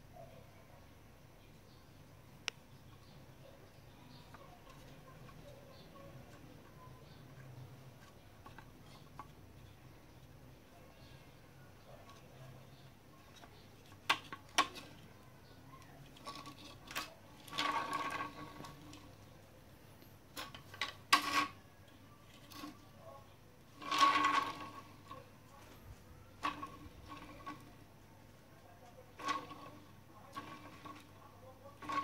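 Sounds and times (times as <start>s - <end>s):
plastic toys clicking on tiled floor: 4.1s - 10.4s, 12.0s - 19.4s, 20.3s - 22.9s, 23.6s - 27.9s, 28.8s - 32.0s.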